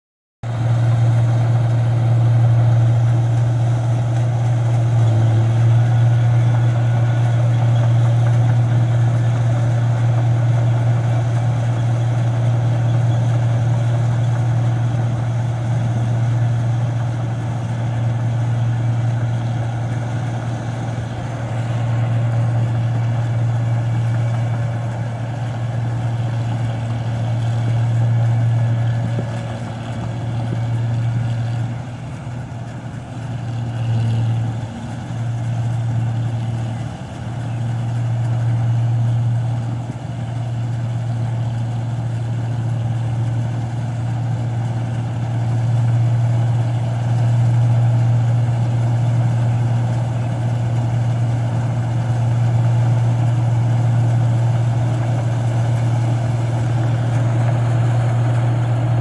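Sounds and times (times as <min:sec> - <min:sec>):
combine harvester engine drone: 0:00.4 - 0:59.0.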